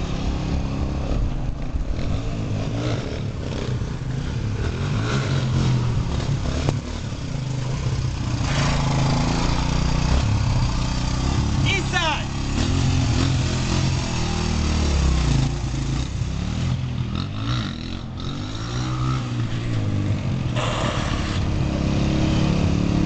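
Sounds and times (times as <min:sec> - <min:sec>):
dirt bike engine approaching: 0:00.0 - 0:23.0.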